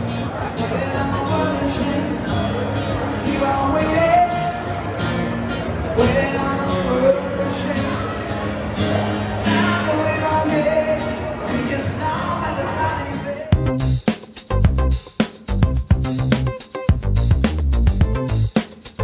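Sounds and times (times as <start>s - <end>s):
guitar: 0.0s - 19.0s
person singing: 0.5s - 4.8s, 9.4s - 13.9s
steady drum beat: 13.5s - 19.0s.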